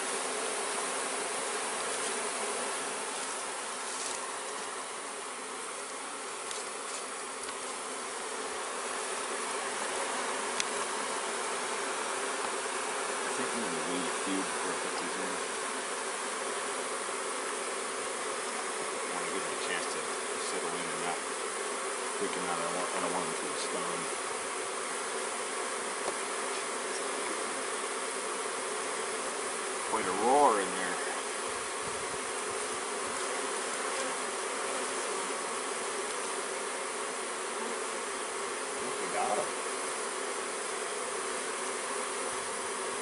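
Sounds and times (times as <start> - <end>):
honeybees buzzing: 0.0 - 43.0.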